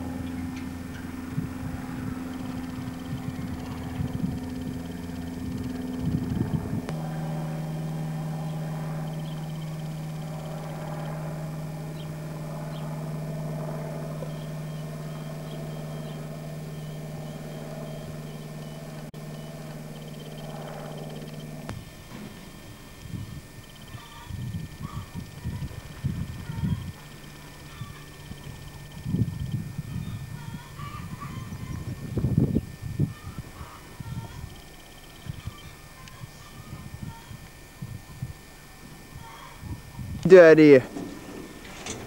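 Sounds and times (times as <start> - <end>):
wind buffeting microphone: 0.0 - 15.6, 23.0 - 40.3
vehicle engine humming: 0.0 - 42.0.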